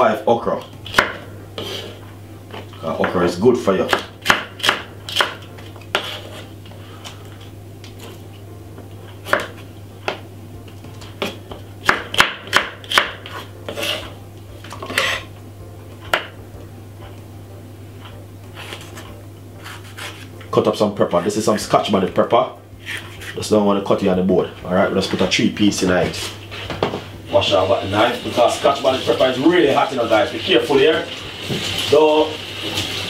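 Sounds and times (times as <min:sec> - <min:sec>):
low steady hum: 0:00.0 - 0:31.8
knife chopping on wooden board: 0:00.8 - 0:01.9, 0:03.9 - 0:06.5, 0:09.2 - 0:10.2, 0:10.8 - 0:14.1, 0:16.0 - 0:16.4.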